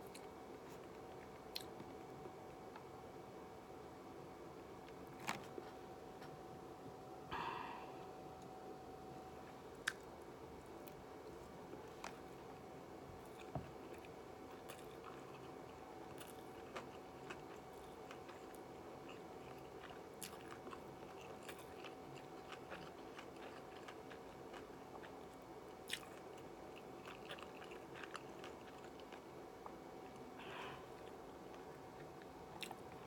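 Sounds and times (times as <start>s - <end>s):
chewing crispy food: 0.0s - 2.9s, 13.2s - 33.0s
faint steady hum: 0.0s - 33.0s.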